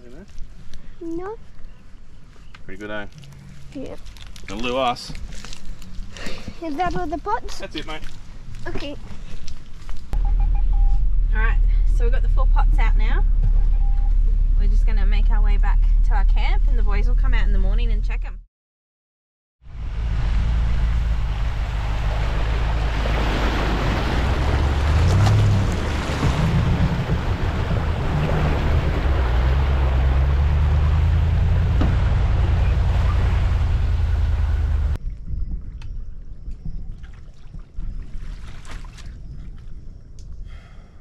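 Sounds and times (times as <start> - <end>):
steady low rumble: 10.0 - 18.4, 19.6 - 36.8
water splashing against vehicle: 19.8 - 35.0.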